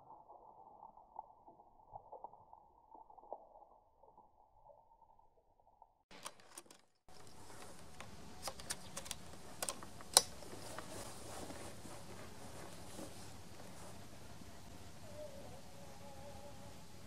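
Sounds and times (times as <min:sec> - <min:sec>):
air rifle mechanical clicks: 0:06.1 - 0:11.1.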